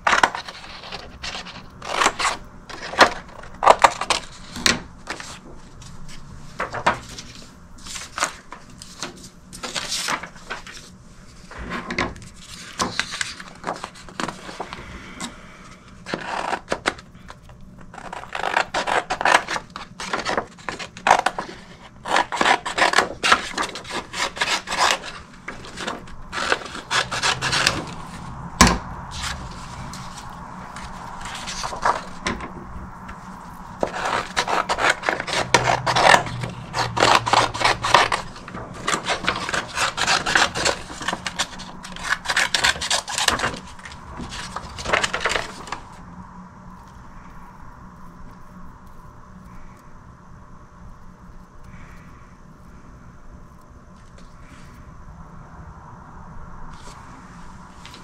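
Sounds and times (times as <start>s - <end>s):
hard objects scraping and knocking: 11.4s - 46.0s.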